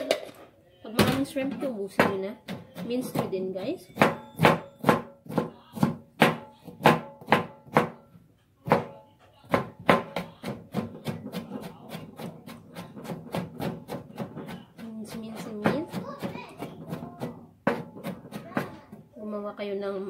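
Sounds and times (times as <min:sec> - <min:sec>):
knife chopping on cutting board: 0:04.0 - 0:08.0, 0:15.6 - 0:19.0.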